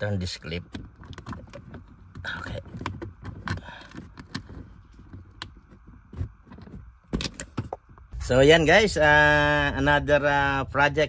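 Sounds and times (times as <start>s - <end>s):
rubbing of plastic trim: 0.5s - 8.0s.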